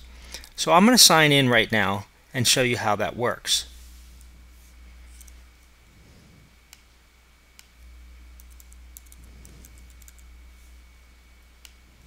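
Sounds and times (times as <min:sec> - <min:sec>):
faint electrical hum: 0:00.0 - 0:12.0
typing on computer keyboard: 0:08.4 - 0:10.3.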